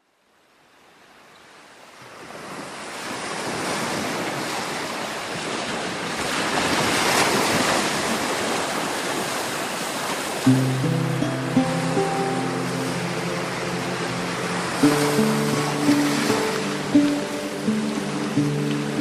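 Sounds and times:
ocean waves breaking: 1.9 - 19.0.

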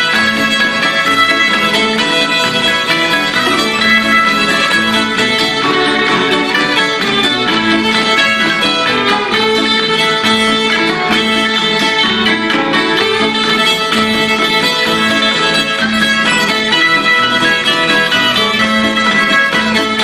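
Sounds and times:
acoustic guitar strumming: 0.0 - 20.0
fiddle dance tune: 0.0 - 20.0.

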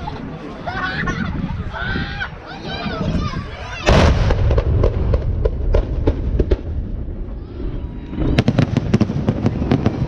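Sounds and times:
fireworks bangs: 3.8 - 10.0.

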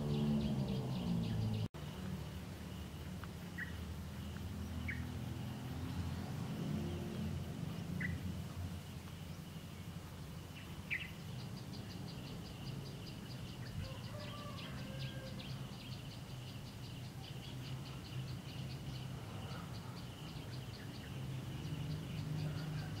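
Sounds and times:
bird chirps: 0.0 - 2.1, 2.7 - 23.0.

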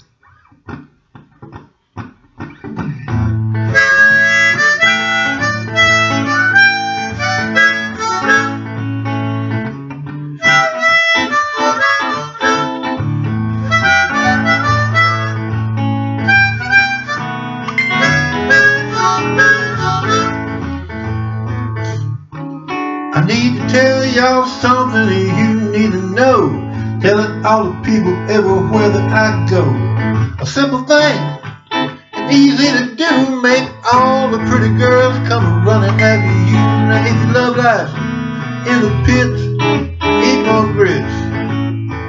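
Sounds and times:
guitar accompaniment: 0.0 - 42.0
harmonica playing blues: 3.2 - 9.6, 10.3 - 22.2, 23.1 - 41.6
low bass line: 35.4 - 37.6.

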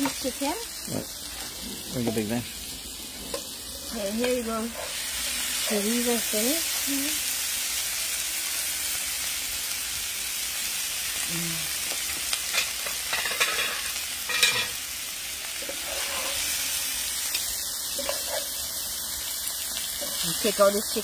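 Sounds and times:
food sizzling in a frying pan: 0.0 - 21.0
metal tongs clinking on pan: 11.9 - 14.8, 17.3 - 18.6.

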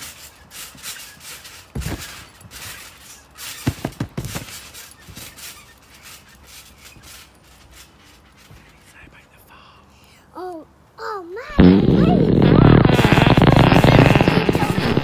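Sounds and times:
feet thumping on trampoline: 0.0 - 8.7.

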